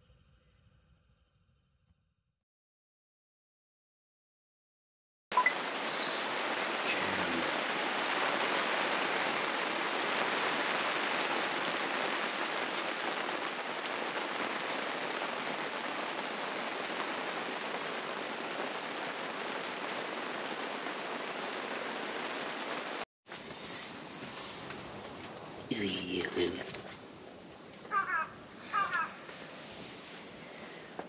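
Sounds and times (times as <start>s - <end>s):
heavy rain on tent roof: 5.3s - 31.0s
faint hiss: 5.7s - 7.5s.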